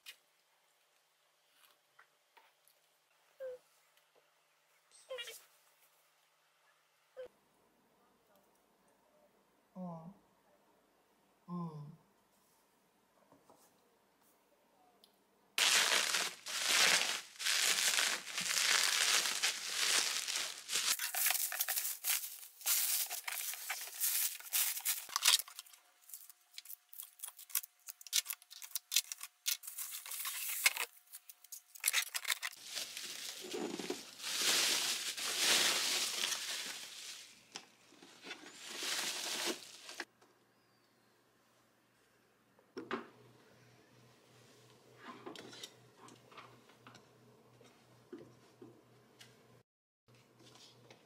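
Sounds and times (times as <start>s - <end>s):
bubble wrap crinkling: 15.6s - 37.5s, 38.2s - 40.1s.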